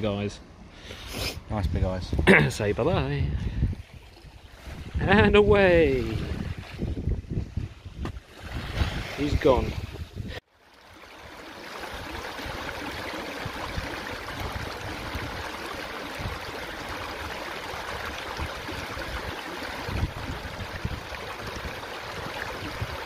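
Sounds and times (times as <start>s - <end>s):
rushing water: 3.8s - 7.4s, 8.2s - 23.0s.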